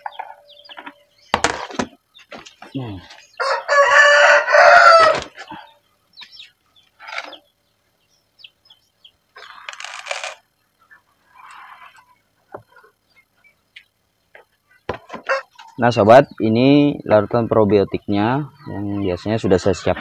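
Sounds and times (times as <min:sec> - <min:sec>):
rooster crowing: 0:03.3 - 0:05.4, 0:15.1 - 0:15.6.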